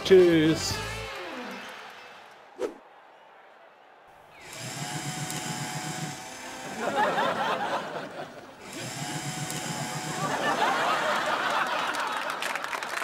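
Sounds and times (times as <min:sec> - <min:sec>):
paper shredder motor humming: 0:04.4 - 0:07.8, 0:08.5 - 0:10.9.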